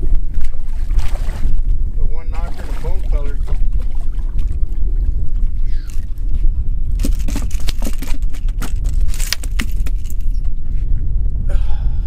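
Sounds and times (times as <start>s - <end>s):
low rumble: 0.0s - 12.0s
fish flopping on boat deck: 2.4s - 10.4s.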